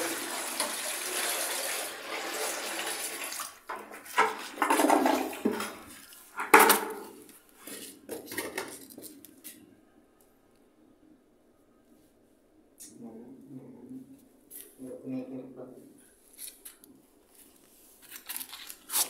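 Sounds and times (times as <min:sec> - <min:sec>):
water pouring into toilet bowl: 0:00.0 - 0:06.0.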